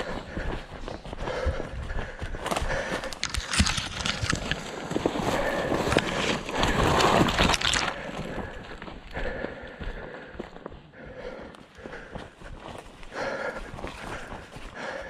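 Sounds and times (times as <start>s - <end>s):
twigs and leaves rustling: 0.3s - 8.9s
footsteps crunching on dry pine straw: 2.4s - 8.2s.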